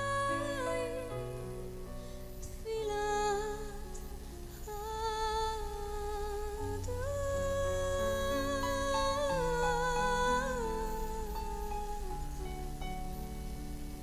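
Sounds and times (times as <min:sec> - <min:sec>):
woman singing long notes: 0:02.5 - 0:12.8.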